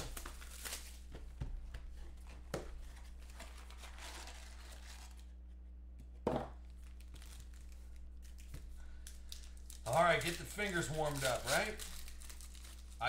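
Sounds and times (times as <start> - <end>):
foil packs crinkling and tearing: 0.0 - 1.1, 2.8 - 5.3, 6.7 - 13.0
low electrical hum: 0.0 - 13.0.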